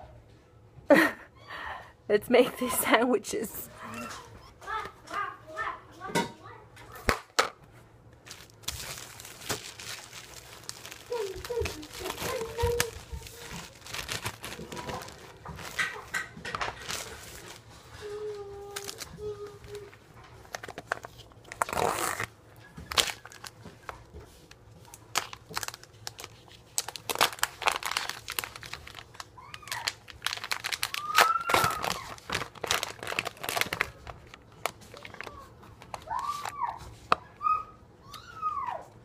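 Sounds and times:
plastic packaging crinkling: 8.2s - 37.2s.

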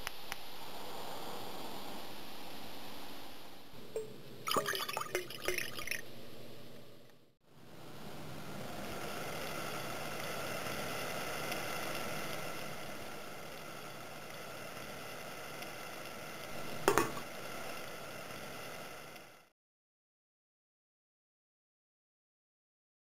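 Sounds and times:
water hissing in a pot: 0.0s - 3.8s, 4.5s - 6.0s, 7.6s - 19.5s
metal lid clanking on pot: 16.9s - 17.2s.

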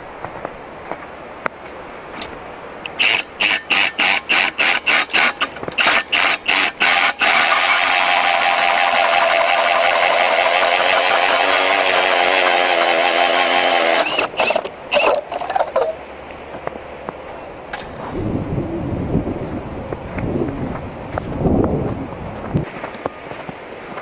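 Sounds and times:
cordless drill motor: 2.9s - 15.2s.

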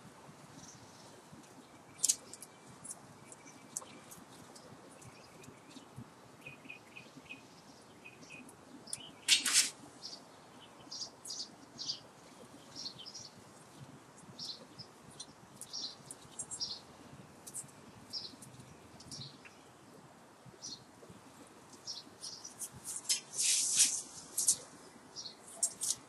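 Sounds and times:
wire squeaking and scraping: 8.9s - 9.8s, 22.5s - 24.8s, 25.4s - 26.0s.

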